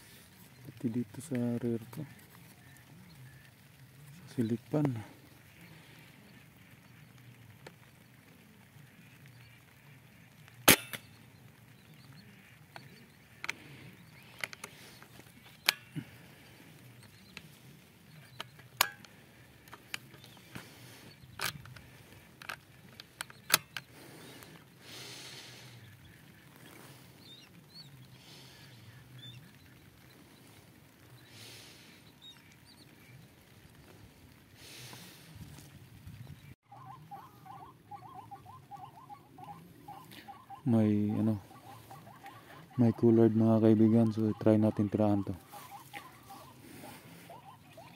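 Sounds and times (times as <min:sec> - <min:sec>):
raindrops tapping: 0:00.1 - 0:36.6.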